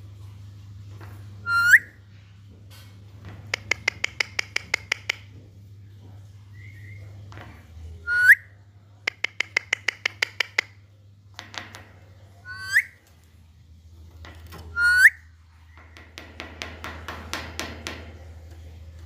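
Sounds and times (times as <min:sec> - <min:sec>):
parakeet shrill calls: 0:01.5 - 0:01.9, 0:12.5 - 0:13.0, 0:14.7 - 0:15.2
parakeet clicking chatter: 0:03.5 - 0:05.3, 0:09.0 - 0:10.8.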